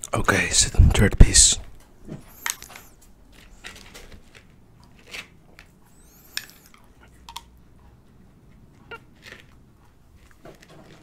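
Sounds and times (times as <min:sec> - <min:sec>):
knife scraping glass jar: 0:02.3 - 0:02.9, 0:05.9 - 0:06.8.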